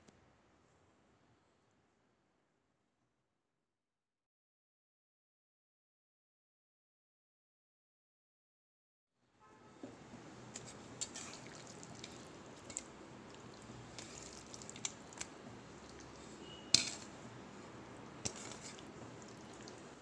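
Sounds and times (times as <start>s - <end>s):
wet knocks and clinks in glass bowl: 15.9s - 17.2s, 18.2s - 19.8s.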